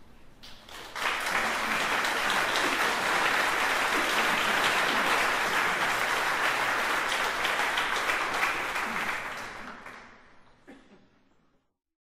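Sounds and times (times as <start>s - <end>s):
audience applauding: 0.4s - 10.3s.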